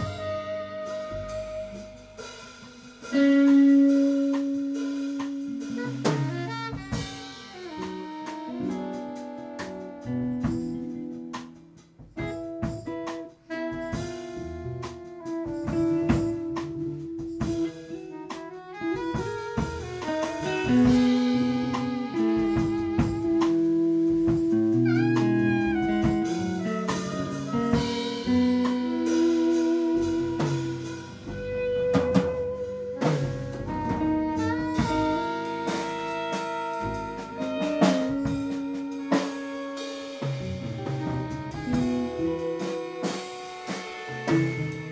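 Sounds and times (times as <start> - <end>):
bass: 0.0 - 44.9
drum and cymbal strokes: 0.0 - 44.9
guitar: 0.0 - 44.9
jazz group playing: 0.0 - 44.9
saxophone: 0.0 - 44.9
long held melody note: 15.8 - 44.9.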